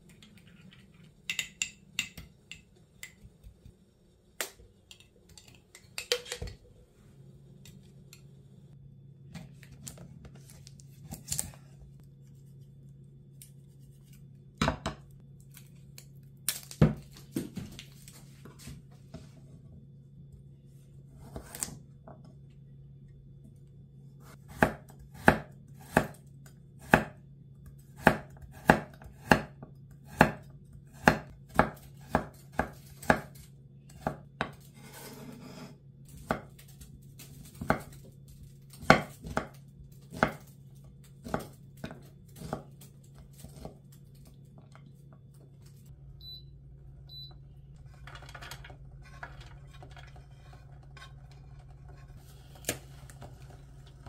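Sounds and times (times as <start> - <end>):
low steady hum: 0.0 - 54.0
knife chopping on wooden board: 24.5 - 26.2, 26.8 - 27.2, 28.0 - 33.3.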